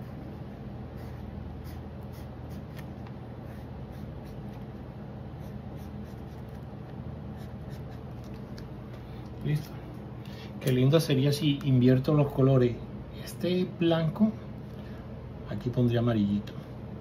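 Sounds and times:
steady low hum: 0.0 - 17.0
marker scratching on paper: 0.9 - 6.7, 7.3 - 8.4.

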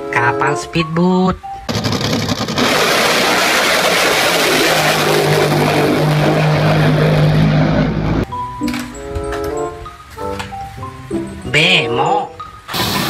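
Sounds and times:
speedboat engine roaring: 1.7 - 8.3.

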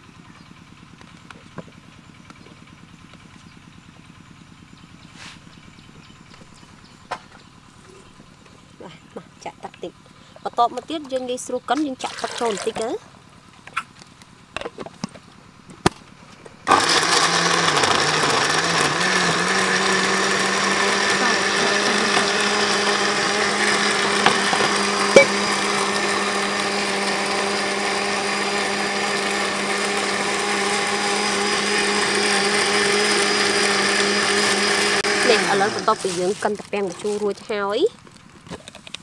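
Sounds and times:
blender running: 16.7 - 37.2.

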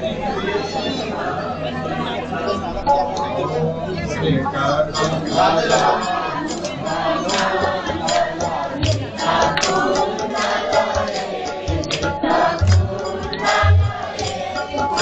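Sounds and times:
group singing: 4.5 - 15.0
low drum beat: 11.7 - 15.0.

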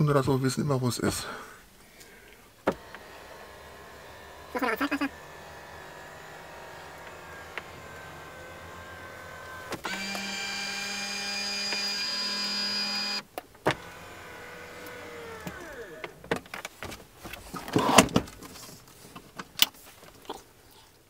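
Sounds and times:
small electric motor whining: 2.7 - 16.2.

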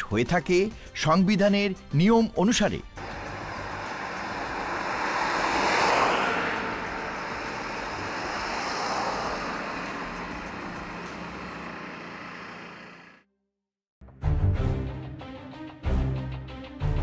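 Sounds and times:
highway vehicles passing by: 3.0 - 13.2.

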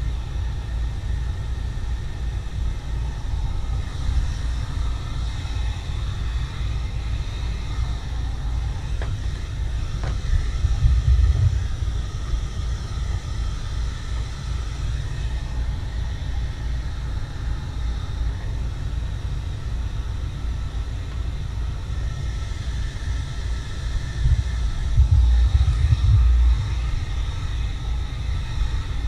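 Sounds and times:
wind buffeting microphone: 3.0 - 16.4, 22.0 - 29.0.

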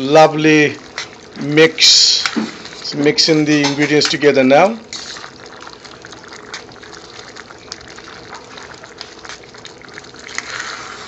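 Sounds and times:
gravy bubbling: 0.0 - 11.0
spoon stirring thick gravy: 0.0 - 11.0.

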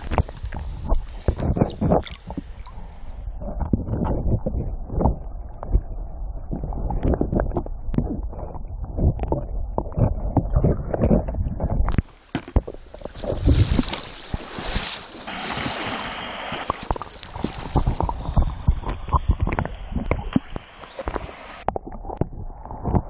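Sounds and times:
water rushing and splashing: 12.0 - 23.0.

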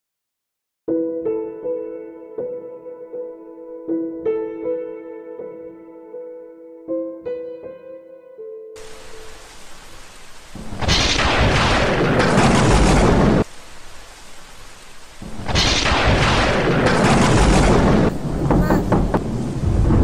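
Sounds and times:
rain falling: 8.8 - 20.0
thunder rolling: 10.5 - 13.5, 15.2 - 20.0.

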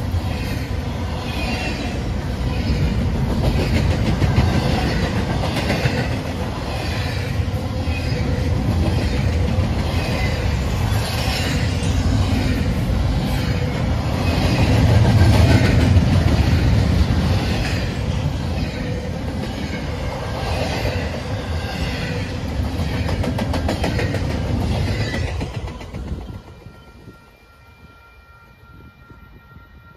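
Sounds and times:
freight train cars rumbling past: 0.0 - 29.9
train wheel clatter: 1.4 - 12.7, 14.2 - 26.9.

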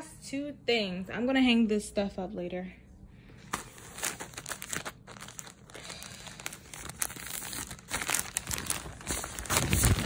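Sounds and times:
plastic bags crinkling: 3.5 - 10.0.

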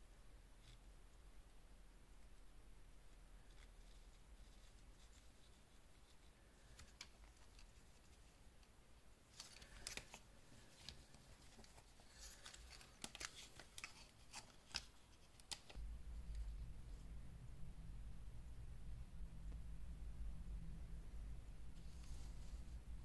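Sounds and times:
cloth rustling on watch: 9.3 - 17.1, 21.7 - 23.0.

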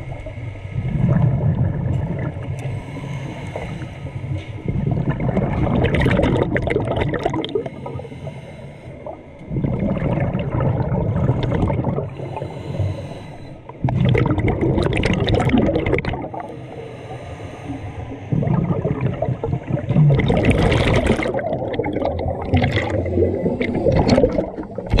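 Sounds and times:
diver exhaling bubbles: 0.8 - 2.6, 3.5 - 8.0, 9.0 - 13.0, 13.8 - 16.6, 18.3 - 25.0
diver inhaling through regulator: 2.5 - 4.8, 7.3 - 9.9, 11.6 - 14.0, 15.9 - 24.9.

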